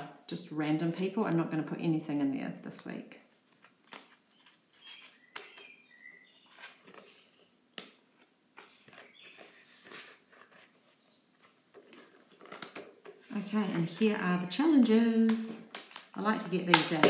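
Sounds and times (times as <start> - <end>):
paper and banknotes rustling: 3.3 - 14.2.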